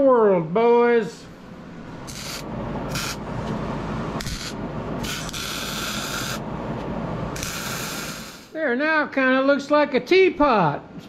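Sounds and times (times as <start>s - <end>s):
welding arc crackling: 2.0s - 3.2s, 4.2s - 6.4s, 7.4s - 8.5s
welding hiss: 2.1s - 3.2s, 4.2s - 6.4s, 7.4s - 8.6s.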